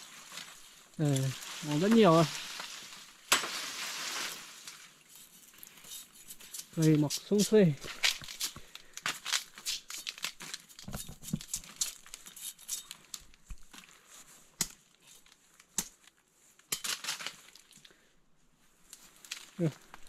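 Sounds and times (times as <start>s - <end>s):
dry leaves crackling and rustling: 0.0s - 6.0s, 6.8s - 10.9s, 16.8s - 17.9s, 19.0s - 20.0s.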